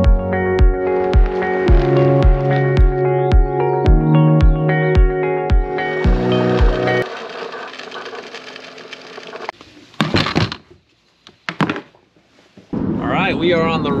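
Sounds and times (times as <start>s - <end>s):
electronic intro music: 0.1s - 8.8s.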